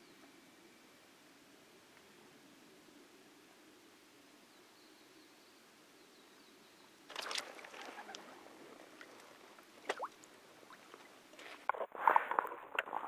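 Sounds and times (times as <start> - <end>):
fish splashing in water: 7.1 - 11.1.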